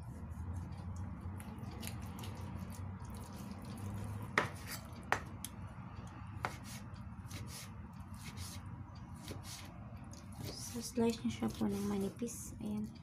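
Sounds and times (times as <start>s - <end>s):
cleaver cutting chicken: 0.5s - 5.3s, 6.4s - 8.6s, 9.2s - 12.3s.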